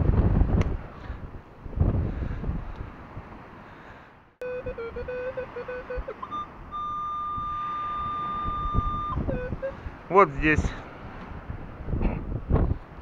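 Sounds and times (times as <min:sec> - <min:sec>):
wind rumble on microphone: 0:00.0 - 0:03.7, 0:04.6 - 0:13.0
metal detector high beeps: 0:04.4 - 0:09.8
metal detector steady high tone: 0:04.4 - 0:09.8
metal detector wavering low tone: 0:04.4 - 0:09.8.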